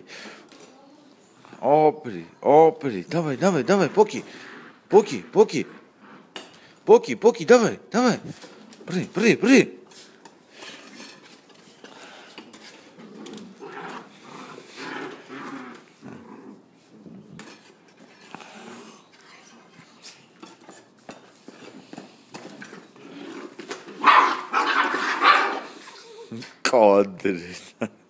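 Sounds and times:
puppies play-growling: 0:03.8 - 0:05.0, 0:10.6 - 0:26.6.

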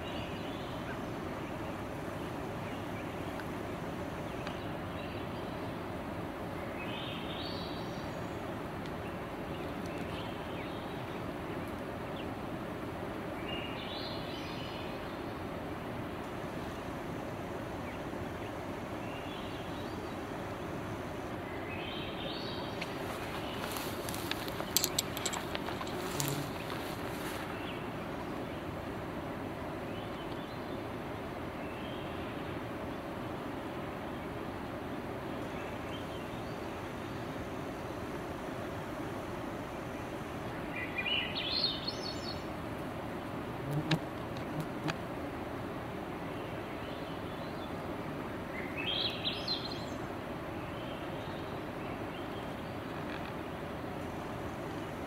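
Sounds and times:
background noise: 0:00.0 - 0:55.0
outdoor background noise: 0:00.0 - 0:55.0
faint camera hum: 0:00.1 - 0:31.0
bird singing: 0:06.6 - 0:12.3, 0:21.4 - 0:28.8, 0:40.5 - 0:42.5, 0:48.5 - 0:53.8.

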